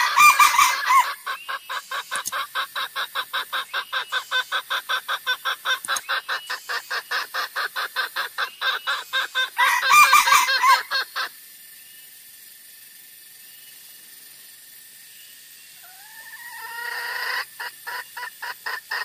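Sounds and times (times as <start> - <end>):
junglefowl clucking calls: 0.0 - 11.4, 15.8 - 19.0.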